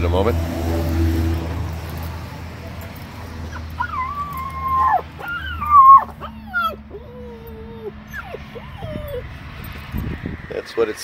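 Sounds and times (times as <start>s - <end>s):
puppy howling: 3.5s - 9.5s.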